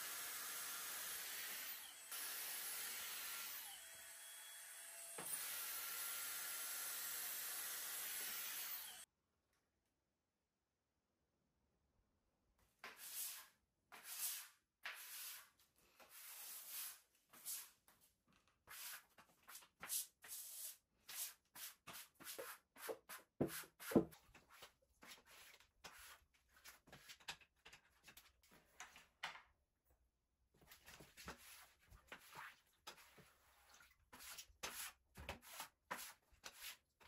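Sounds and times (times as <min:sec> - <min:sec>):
broom sweeping tile floor: 0:12.6 - 0:29.1, 0:30.6 - 0:37.0.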